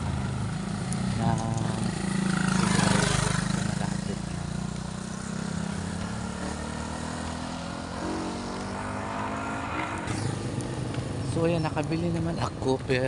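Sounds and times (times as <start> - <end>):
vehicle passing: 0.0 - 12.8.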